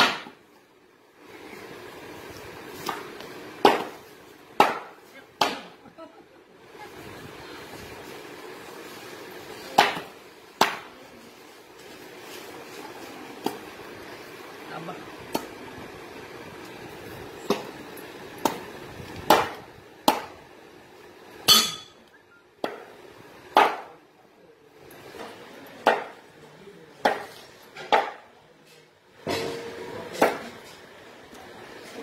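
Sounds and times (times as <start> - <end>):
blade chopping on wooden board: 4.6 - 5.7, 19.3 - 20.3, 23.5 - 23.9.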